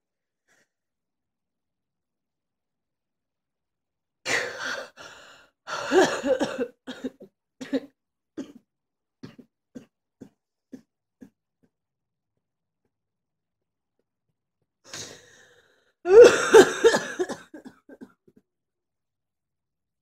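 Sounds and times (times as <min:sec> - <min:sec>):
person coughing: 0:05.8 - 0:08.6, 0:16.1 - 0:18.1.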